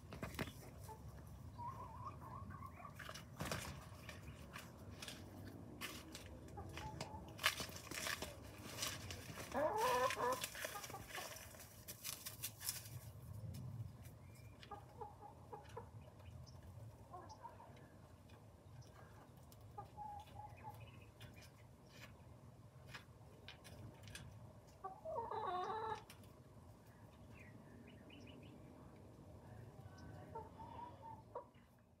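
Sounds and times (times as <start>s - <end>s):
hens clucking softly: 0.1s - 4.7s, 9.3s - 11.8s, 14.5s - 22.1s, 23.8s - 28.4s, 29.4s - 31.9s.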